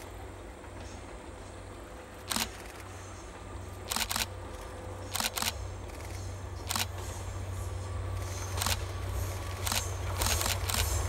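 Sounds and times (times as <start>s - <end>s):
camera shutter clicking: 2.3s - 2.7s, 3.9s - 4.3s, 5.1s - 5.6s, 9.6s - 10.9s.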